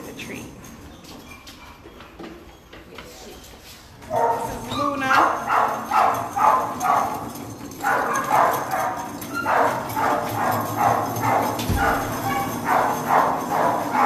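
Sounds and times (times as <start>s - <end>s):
dogs barking: 4.0s - 14.0s.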